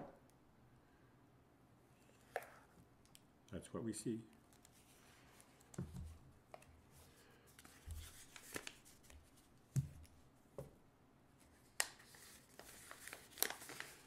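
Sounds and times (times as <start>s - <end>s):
paper rustling: 4.5s - 9.5s, 11.6s - 14.0s.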